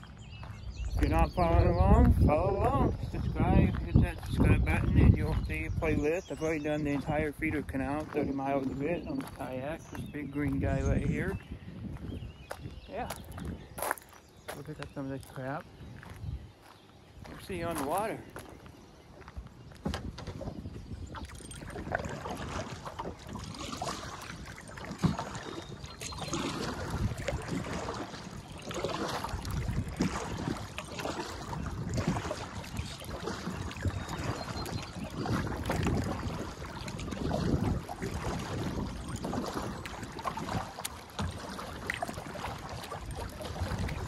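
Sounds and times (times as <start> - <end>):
wind buffeting microphone: 0.0 - 44.0
paddle splashing in water: 19.8 - 44.0.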